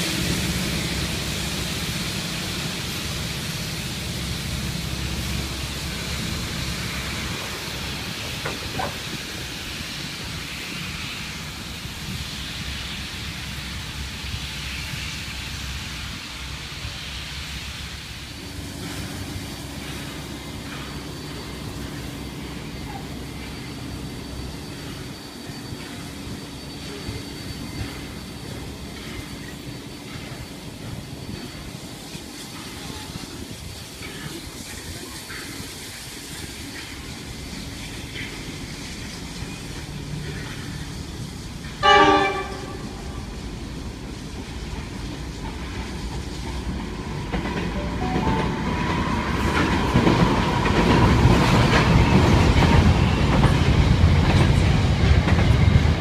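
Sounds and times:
freight train rumble: 0.0 - 56.0
train carriages rolling past: 0.0 - 56.0
short train horn blast: 41.8 - 43.3.

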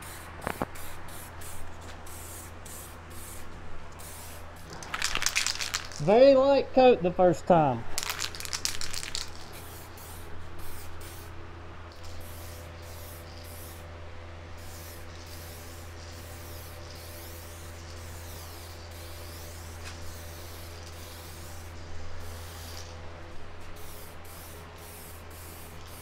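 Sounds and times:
aerosol can hissing: 14.6 - 22.9, 23.8 - 26.0.

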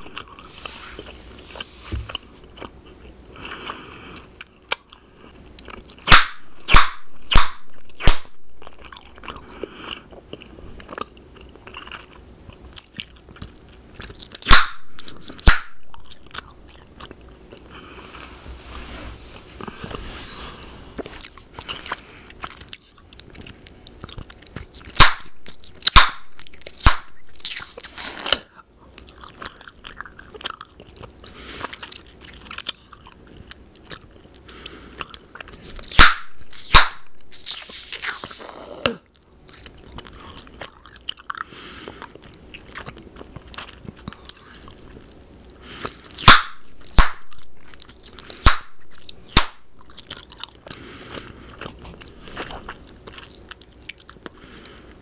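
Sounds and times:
bubble gum pops: 6.1 - 8.3, 14.4 - 14.8, 15.4 - 15.8, 36.0 - 37.0, 46.2 - 47.3, 48.4 - 48.7
wet gum chewing smacks: 21.0 - 54.7.

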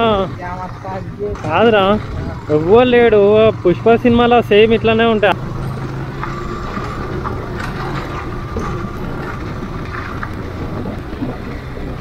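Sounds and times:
motorcycle engine running: 0.0 - 12.0
wind noise on microphone: 5.5 - 12.0.

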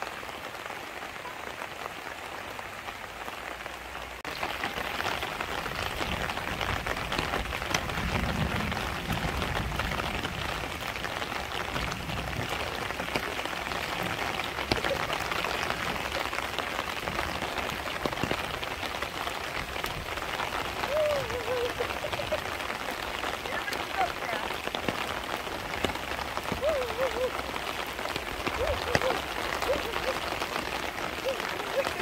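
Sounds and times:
steady rain falling: 0.0 - 32.0.

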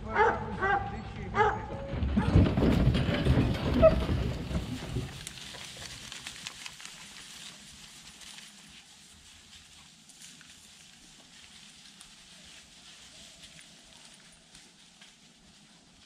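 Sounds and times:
dog yelp: 0.2 - 1.7
dogs running through pine straw: 3.4 - 16.0.

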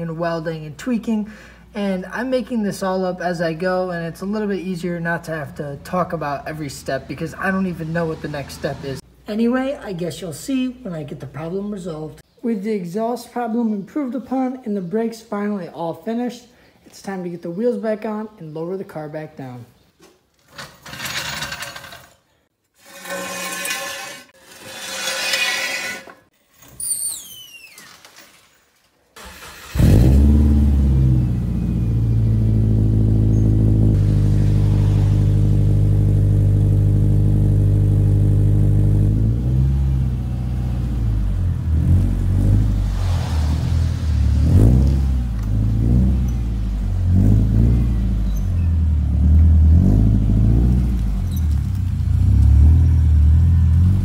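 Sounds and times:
car engine starting and idling: 29.2 - 54.0
engine note rising and falling: 29.5 - 51.3.

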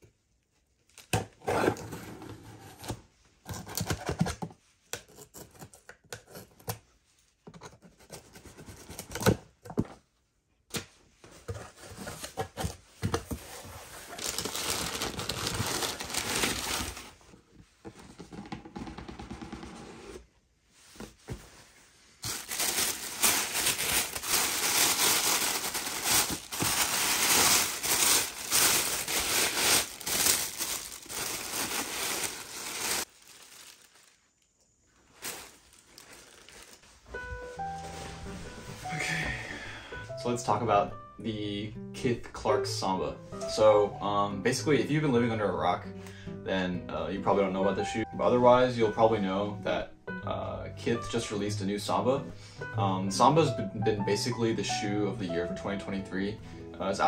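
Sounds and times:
cardboard box handling: 11.4 - 20.2
paper crinkling and tearing: 13.5 - 17.3, 22.2 - 34.3, 35.1 - 37.0.

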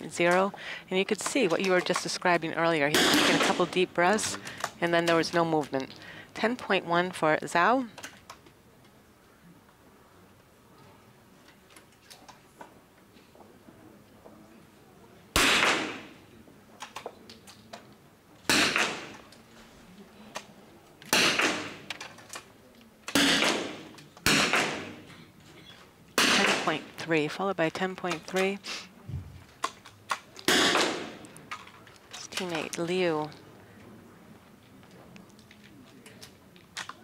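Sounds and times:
rifle shots echoing indoors: 2.9 - 3.7, 15.4 - 16.2, 18.5 - 19.3, 21.1 - 21.9, 23.1 - 25.1, 30.5 - 31.3.

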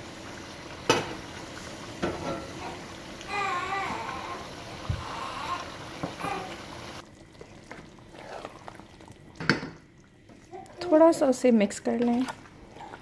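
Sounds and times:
gas burner hissing: 0.0 - 7.0.

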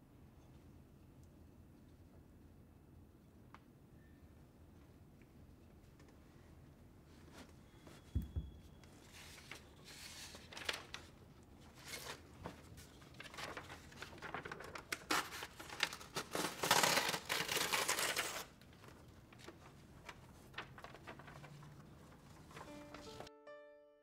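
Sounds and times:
paper rustling and crinkling: 8.9 - 23.3.

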